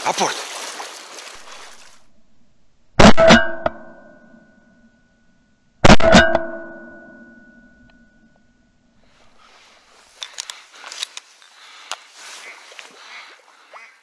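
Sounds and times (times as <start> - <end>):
shotgun shots: 3.0 - 3.6, 5.8 - 6.4
ringing tone: 3.3 - 8.9.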